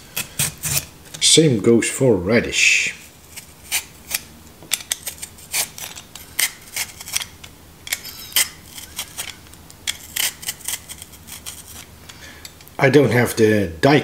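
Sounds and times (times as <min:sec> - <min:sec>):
vegetable peeler scraping radish: 0:00.0 - 0:01.2, 0:03.2 - 0:11.9.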